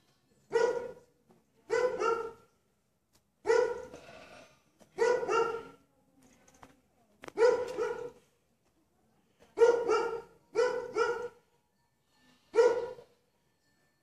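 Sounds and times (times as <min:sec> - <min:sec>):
dog barking: 0:00.5 - 0:01.1, 0:01.7 - 0:02.5, 0:03.4 - 0:04.0, 0:05.0 - 0:05.8, 0:07.4 - 0:08.2, 0:09.6 - 0:11.4, 0:12.5 - 0:13.1.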